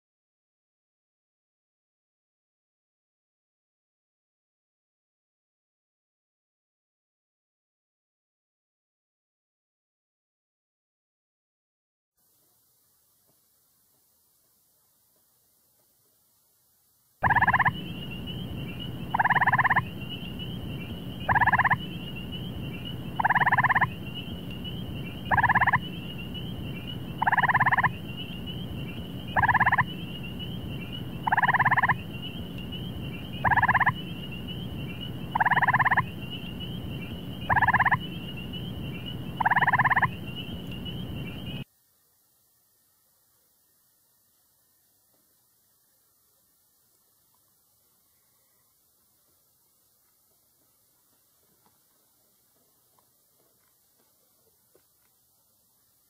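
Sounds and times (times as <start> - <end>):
low hum: 17.2 - 41.6
treefrog trilling: 17.2 - 41.6.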